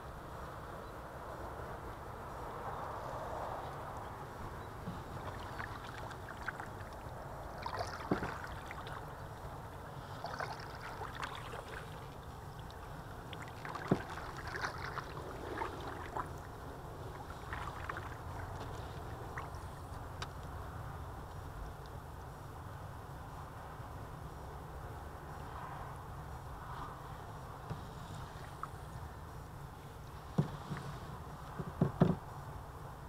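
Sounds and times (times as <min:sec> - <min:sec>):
water lapping along hull: 0:04.3 - 0:20.2, 0:27.3 - 0:32.2
small splashes and knocks: 0:04.8 - 0:20.4, 0:30.2 - 0:32.2.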